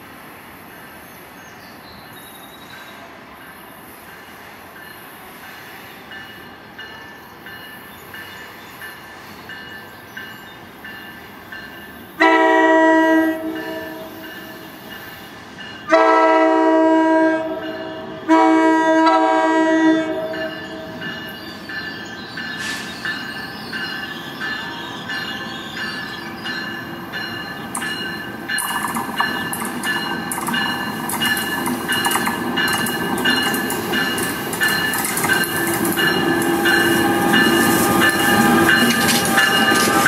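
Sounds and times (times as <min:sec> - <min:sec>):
train horn blasts: 0:12.2 - 0:14.2, 0:15.9 - 0:21.0, 0:36.1 - 0:40.0.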